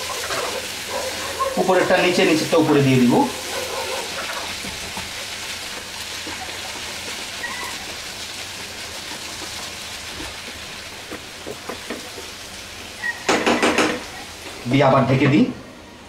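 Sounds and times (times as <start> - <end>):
vegetables sizzling in oil: 0.0 - 16.0.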